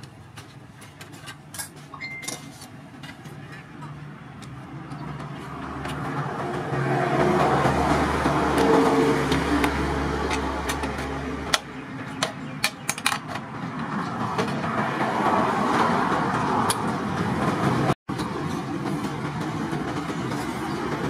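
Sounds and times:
engine-like drone: 3.5 - 12.8.

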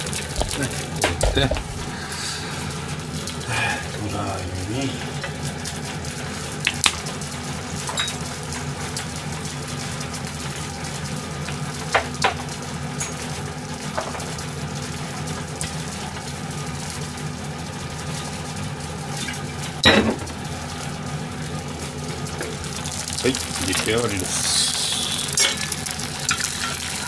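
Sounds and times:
liquid pouring: 0.0 - 4.1, 22.1 - 27.0
low mechanical hum: 0.0 - 27.0.

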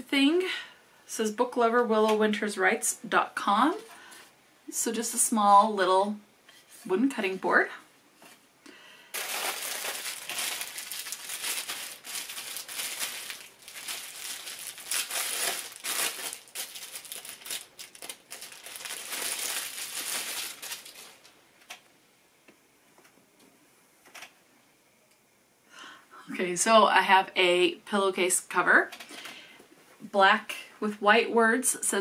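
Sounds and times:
packaging crinkling: 9.1 - 21.4.

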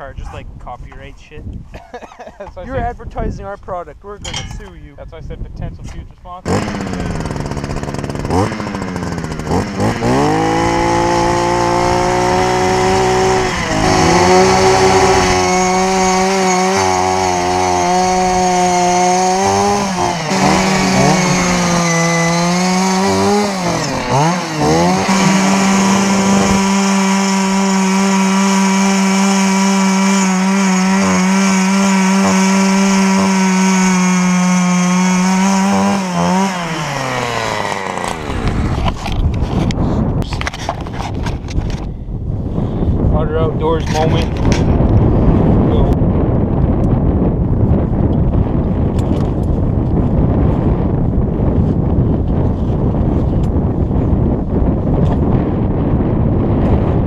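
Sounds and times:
ice auger engine drilling: 6.5 - 39.8.

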